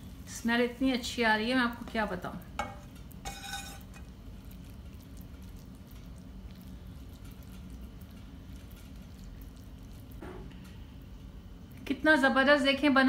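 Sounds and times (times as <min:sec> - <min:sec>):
low background hum: 0:00.0 - 0:13.0
spatula scraping on a ceramic plate: 0:02.6 - 0:04.0.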